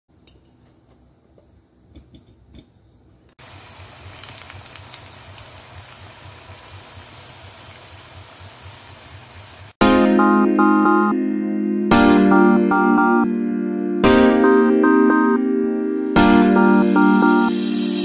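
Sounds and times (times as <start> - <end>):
food deep-frying in hot oil: 3.4 - 9.8.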